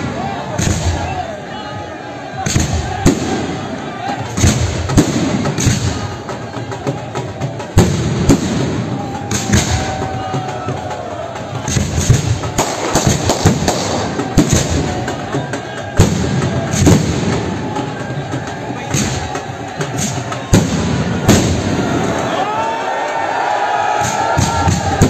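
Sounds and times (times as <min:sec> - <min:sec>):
firework crackle and rumble: 0:11.7 - 0:15.1, 0:16.0 - 0:17.7, 0:20.0 - 0:22.2.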